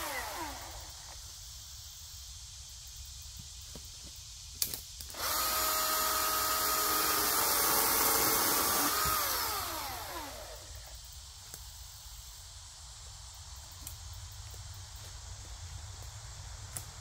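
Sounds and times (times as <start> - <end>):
chainsaw cutting log: 0.0 - 1.2, 5.1 - 11.0.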